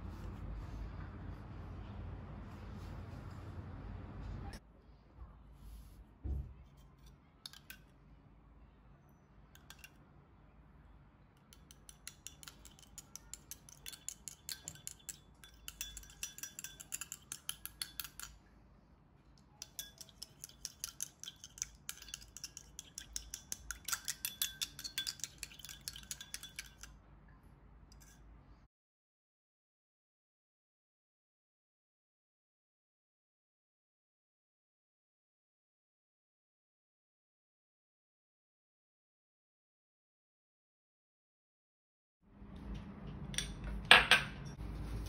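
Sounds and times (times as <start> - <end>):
spoon beating eggs in glass bowl: 6.9 - 7.9, 9.6 - 10.0, 11.4 - 18.4, 19.6 - 27.0, 27.9 - 28.2
spoon tapping glass bowl: 7.5 - 7.9, 9.6 - 10.0, 11.4 - 18.4, 19.6 - 26.9.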